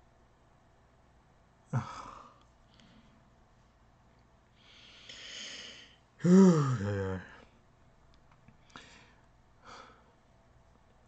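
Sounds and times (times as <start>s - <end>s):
man exhaling: 1.7s - 2.4s, 4.7s - 7.3s
man humming: 1.7s - 2.4s, 6.2s - 7.5s.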